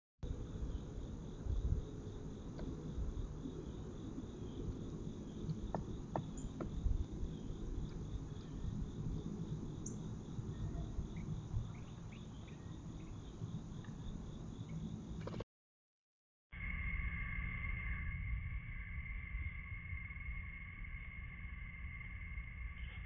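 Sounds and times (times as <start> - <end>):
low rumble of microphone noise: 0.2 - 15.3
insects chirping: 0.3 - 15.4, 16.6 - 23.0.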